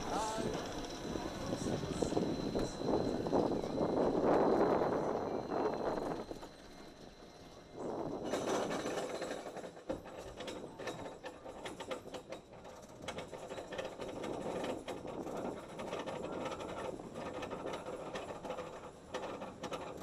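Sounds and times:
anti-rollback dogs clicking: 8.2s - 20.0s.

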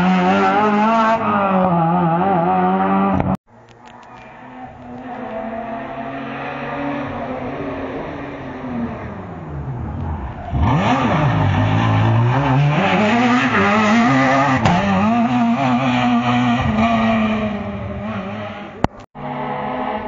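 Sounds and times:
rally car engine passing: 0.0s - 20.0s.

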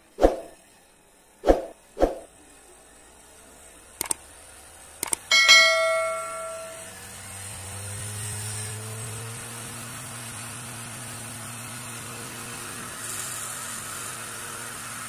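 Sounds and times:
mouse clicks: 5.0s - 5.3s
bell ding: 5.3s - 6.9s.

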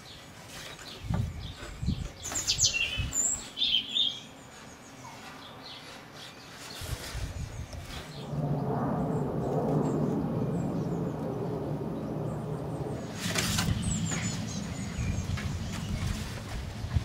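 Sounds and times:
low rumble: 8.1s - 17.0s.

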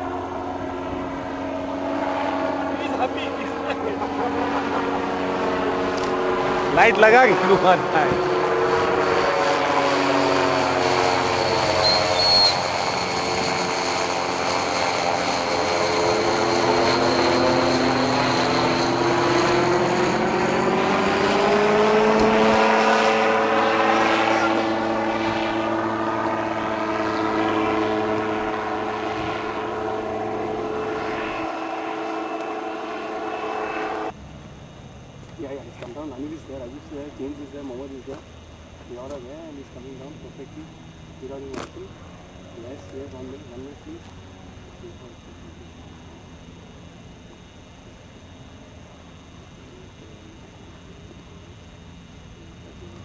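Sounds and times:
aircraft engine and propeller droning: 0.0s - 53.0s.

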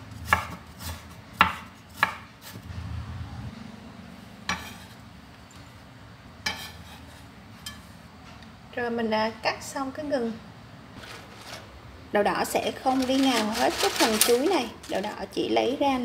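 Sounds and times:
knife chopping on wooden board: 0.2s - 2.6s
soft rustle: 11.0s - 11.8s, 12.7s - 15.3s.

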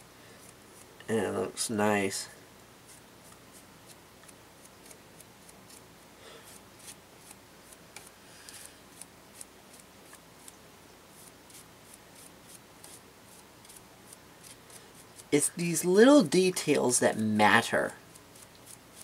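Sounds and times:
paintbrush scratching on plastic: 2.9s - 5.8s, 6.5s - 15.4s, 18.1s - 19.0s.

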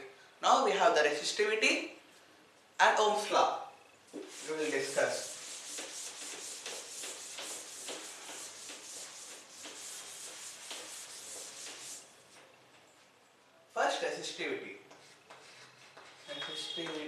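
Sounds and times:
scratchy rubbing on a board: 4.1s - 12.1s, 14.9s - 17.0s.

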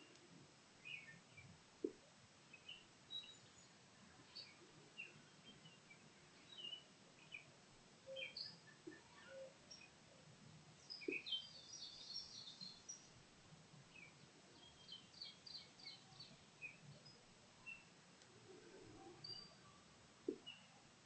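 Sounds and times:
quiet outdoor background noise: 0.0s - 21.0s
birds chirping: 8.1s - 10.0s, 10.8s - 13.1s, 13.9s - 20.8s.

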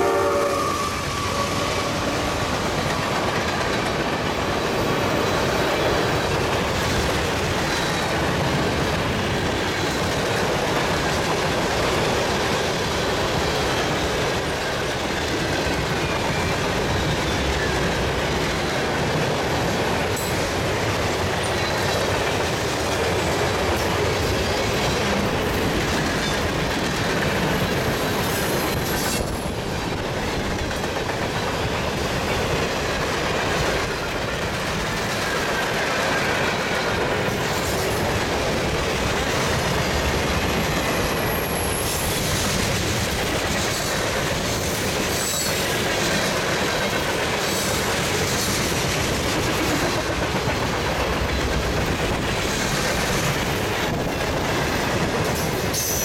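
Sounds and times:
steel wheels rumbling on rail: 0.0s - 56.0s
wheel flange squeals: 0.3s - 2.4s.

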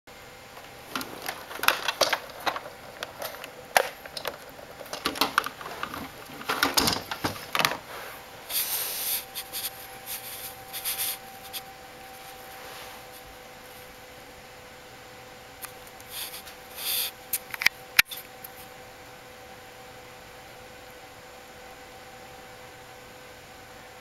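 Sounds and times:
rustling: 0.6s - 13.9s.

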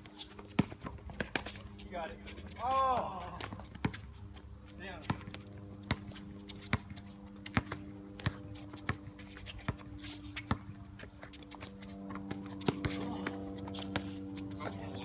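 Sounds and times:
basketball bouncing on hard court: 0.4s - 1.6s, 3.4s - 4.1s, 5.0s - 11.3s, 12.0s - 15.0s.

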